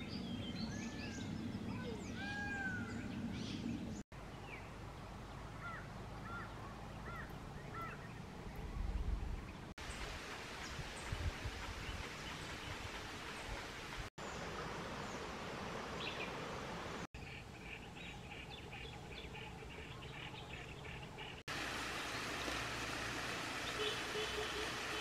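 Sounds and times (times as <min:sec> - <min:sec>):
steady hiss: 0:09.8 - 0:17.1.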